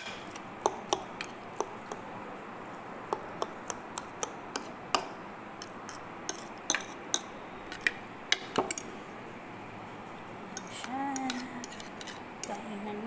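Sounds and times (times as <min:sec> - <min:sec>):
metal spoon scraping a bowl: 0:10.5 - 0:12.6.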